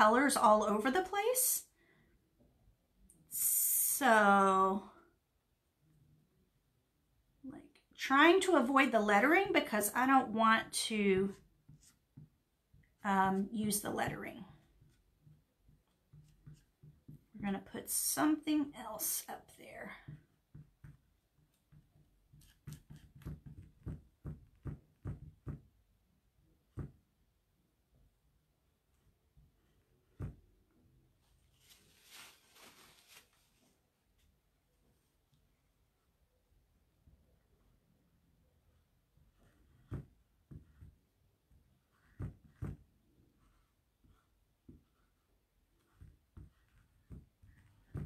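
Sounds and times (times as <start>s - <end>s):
squeegee scraping: 31.5s - 33.6s.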